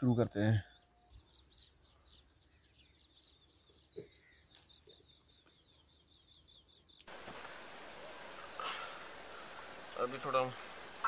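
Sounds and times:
steady hiss: 0:07.1 - 0:11.0.

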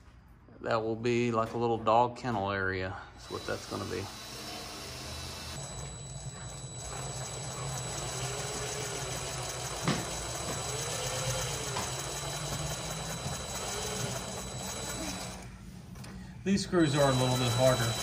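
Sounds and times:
impact driver hammering screw: 0:06.7 - 0:15.4.

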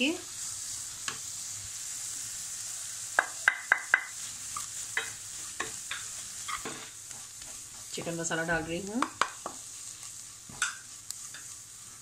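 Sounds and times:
onions sizzling in butter: 0:00.0 - 0:12.0
spatula tapping metal pan: 0:03.2 - 0:04.2, 0:04.9 - 0:06.8, 0:09.0 - 0:09.6, 0:10.5 - 0:11.5.

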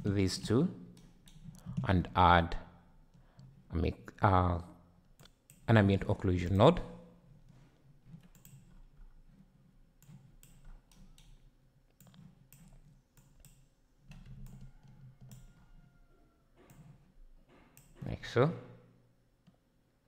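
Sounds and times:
mouse and keyboard clicks: 0:08.1 - 0:08.8, 0:10.0 - 0:15.6.

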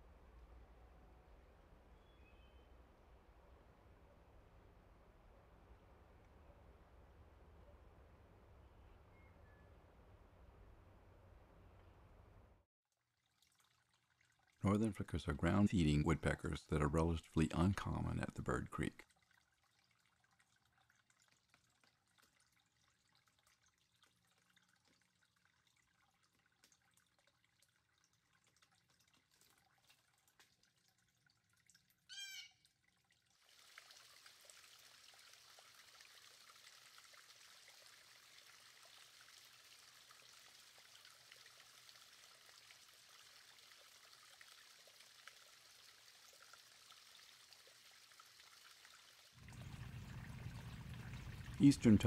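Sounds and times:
water trickling over rocks: 0:12.9 - 0:52.0.

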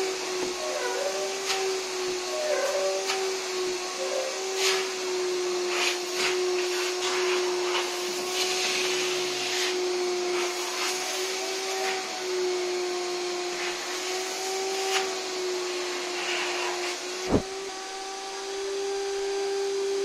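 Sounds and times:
nozzle sucking on upholstery: 0:00.0 - 0:12.3, 0:13.4 - 0:19.7
vacuum cleaner whine: 0:00.0 - 0:20.0.

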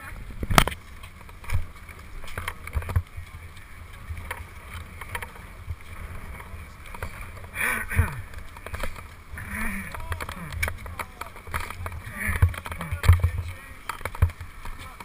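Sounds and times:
skis knocking and clacking: 0:00.0 - 0:15.0.

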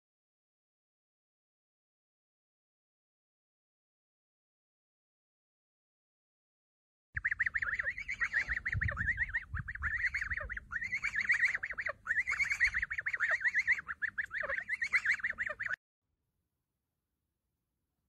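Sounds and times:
geese chattering peeps: 0:07.2 - 0:15.8.

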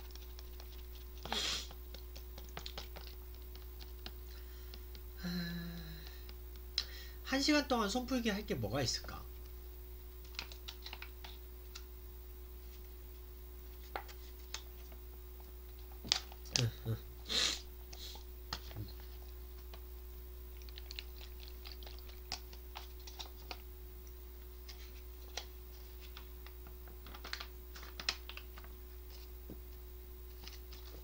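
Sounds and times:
faint clicks and taps: 0:00.0 - 0:05.1
faint steady hum: 0:00.0 - 0:31.0.

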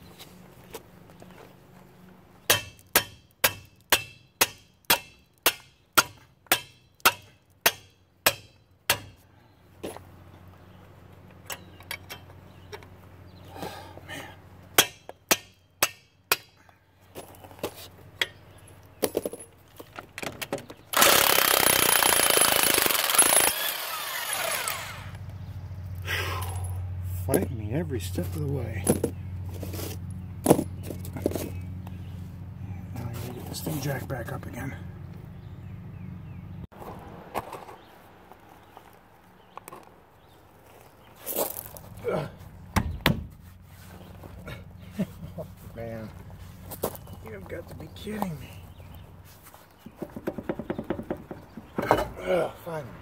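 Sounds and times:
hammer striking metal wrench: 0:02.5 - 0:09.2.

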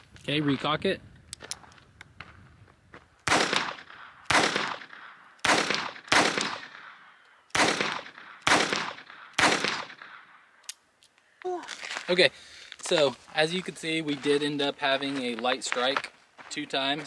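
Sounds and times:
pistol shots with echo: 0:03.2 - 0:10.4.

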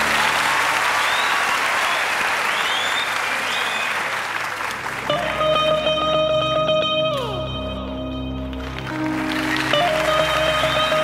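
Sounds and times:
audience applauding: 0:00.0 - 0:06.1, 0:08.5 - 0:11.0
whistles: 0:01.0 - 0:04.1
electric lute plucked: 0:05.1 - 0:11.0.

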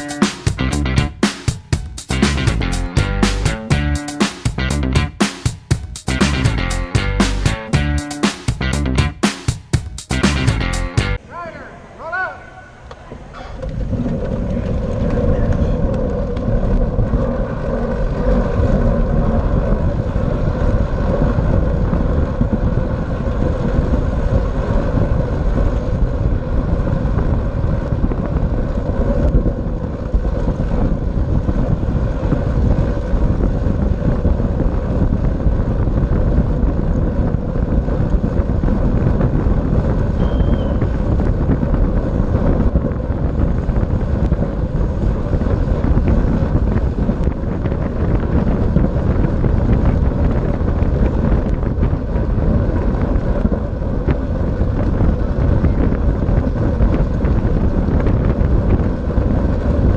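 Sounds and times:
wind rushing over microphone: 0:00.0 - 0:59.9
bicycle tyres and chain humming: 0:13.5 - 0:59.9.

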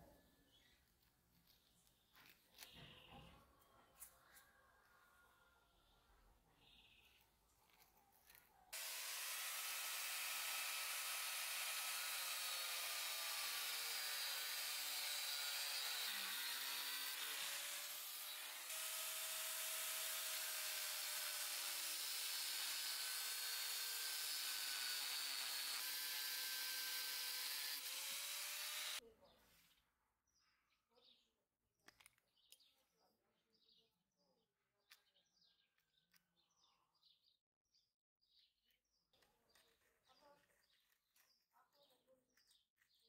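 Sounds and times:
angle grinder cutting steel: 0:08.8 - 0:29.0.

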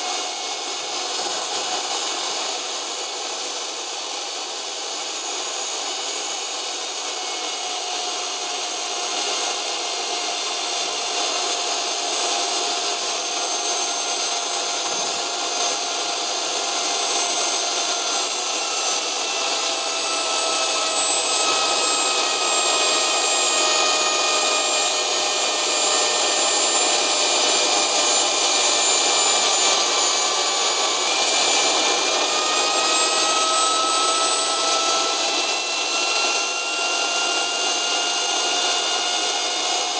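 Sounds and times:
high turbine whine: 0:00.0 - 0:26.5, 0:28.7 - 0:39.9.

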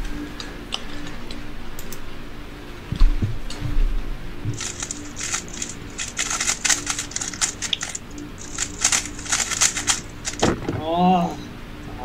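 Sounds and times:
plastic puzzle cube clicking: 0:04.6 - 0:10.5
low thump: 0:10.4 - 0:11.0.

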